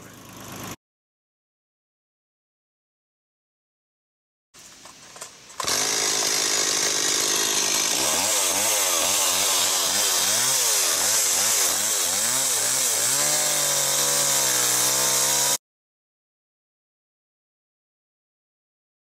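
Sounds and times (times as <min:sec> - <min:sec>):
chainsaw cutting log: 0:00.0 - 0:00.8, 0:05.5 - 0:15.6.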